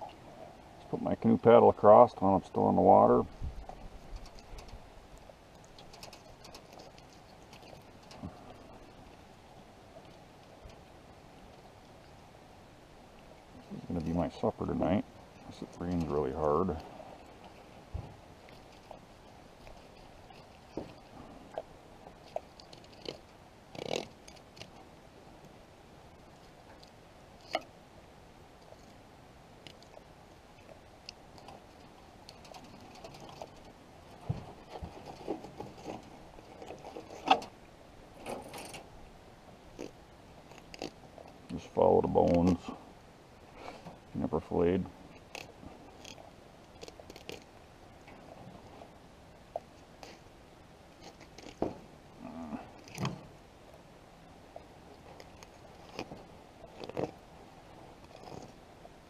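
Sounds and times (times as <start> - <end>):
knife crunching and scraping bones: 22.3 - 24.7, 45.2 - 47.5, 51.0 - 51.6, 55.2 - 57.2.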